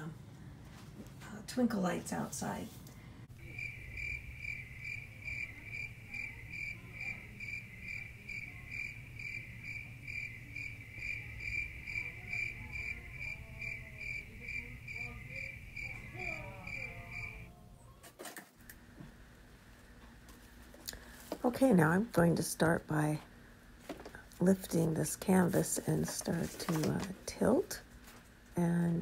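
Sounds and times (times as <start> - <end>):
low steady hum: 0.0 - 29.0
cricket chirping: 3.4 - 17.5.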